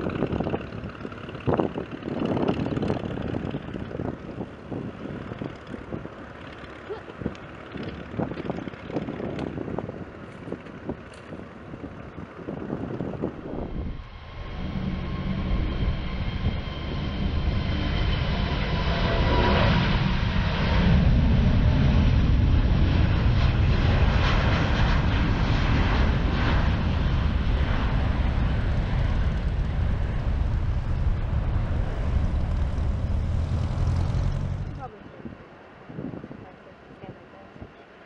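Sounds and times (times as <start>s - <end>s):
jet engines deep rumble: 0.0s - 37.8s
faint high jet whine: 13.4s - 21.0s.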